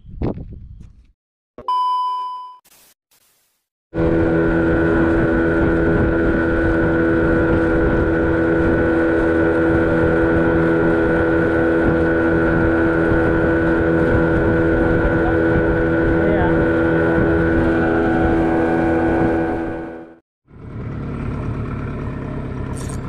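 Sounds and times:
wind noise on microphone: 0.0s - 1.1s, 4.0s - 19.9s
boat engine running: 4.0s - 23.0s.

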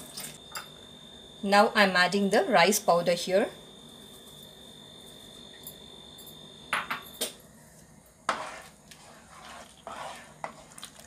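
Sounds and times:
spatula stirring milk in metal pot: 8.2s - 11.0s
spatula scraping pot: 8.3s - 11.0s.

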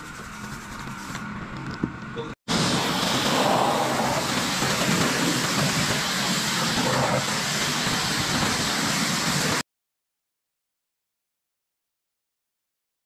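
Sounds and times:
pressure washer spraying: 2.5s - 9.6s.

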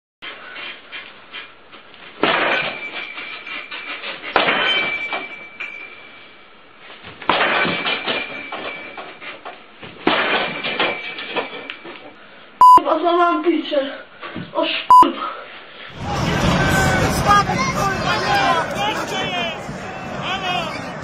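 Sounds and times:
loud crashes with clattering ring: 4.4s - 6.0s.

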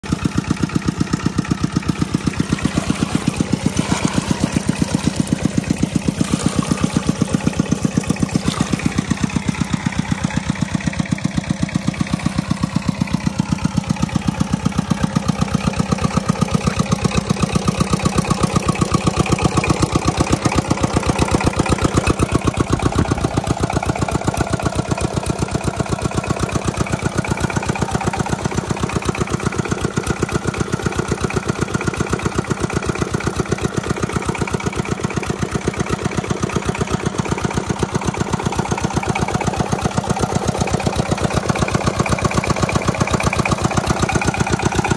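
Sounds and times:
diesel engine chugging: 0.0s - 44.9s.

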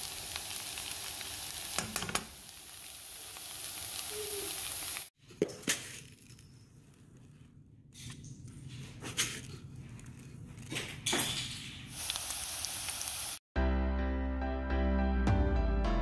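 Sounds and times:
fish sizzling in a frying pan: 0.0s - 5.1s, 11.9s - 13.4s.

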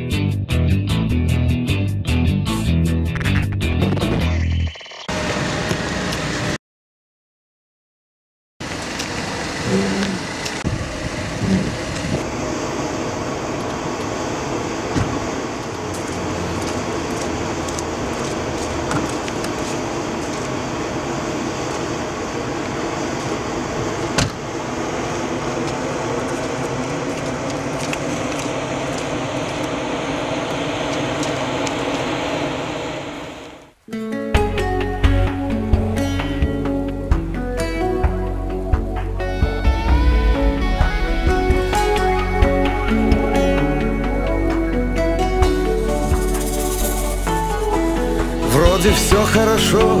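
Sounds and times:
car engine running: 8.6s - 33.6s, 38.3s - 44.7s.

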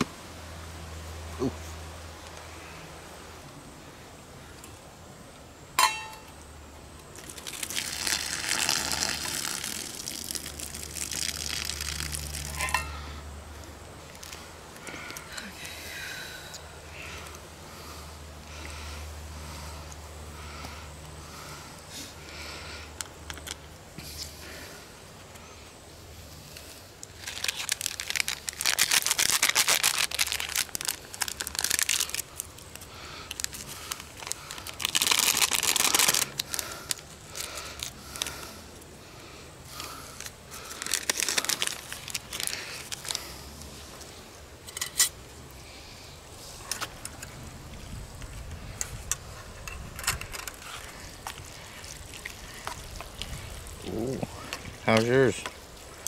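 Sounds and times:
plastic packets crinkling: 7.2s - 12.8s, 27.0s - 38.5s, 39.8s - 43.4s.

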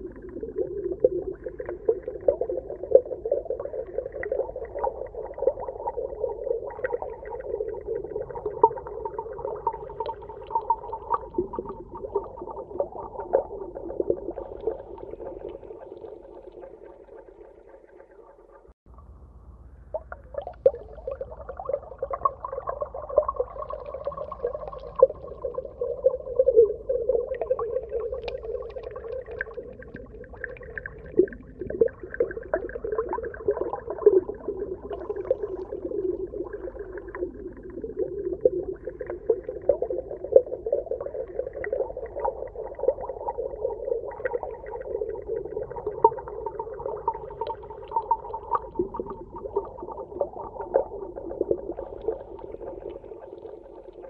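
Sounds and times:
underwater wavering hum: 0.0s - 54.0s
small clicks and pops: 28.2s - 30.1s.

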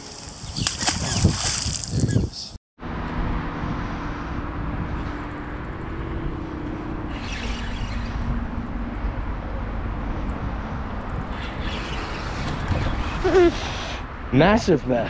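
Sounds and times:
low engine hum: 2.8s - 14.2s
traffic rumbling over bridge: 2.8s - 15.0s.

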